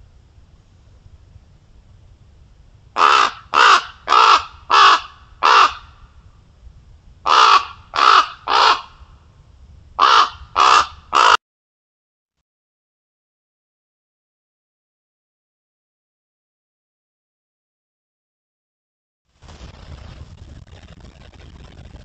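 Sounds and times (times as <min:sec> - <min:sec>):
ravens giving harsh caws: 0:03.0 - 0:05.9, 0:07.2 - 0:09.0, 0:10.0 - 0:11.4.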